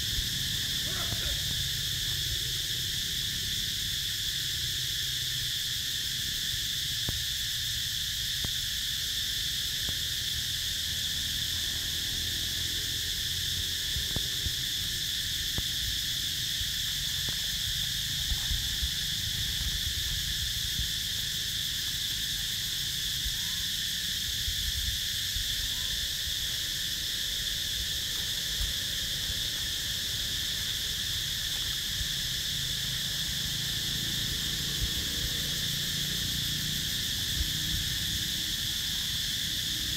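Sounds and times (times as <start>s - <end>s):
insects droning: 0.0s - 39.9s
faint ticks: 7.0s - 7.2s.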